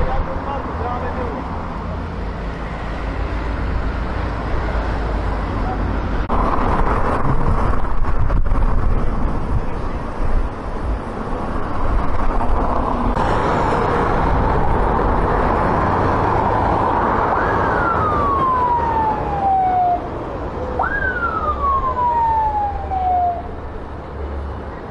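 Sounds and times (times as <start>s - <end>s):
diesel truck engine: 0.0s - 24.9s
road noise: 0.0s - 24.9s
siren wailing: 16.8s - 23.6s.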